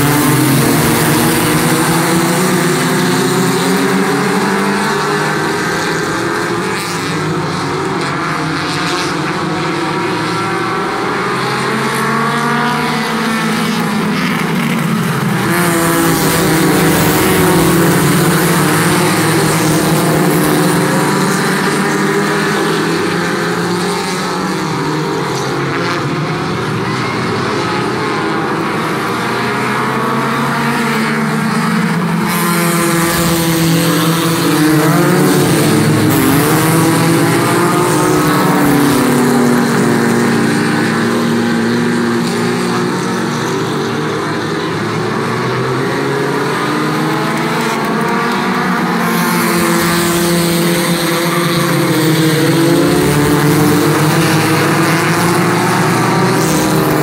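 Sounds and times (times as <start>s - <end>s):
race car engines revving: 0.0s - 57.0s.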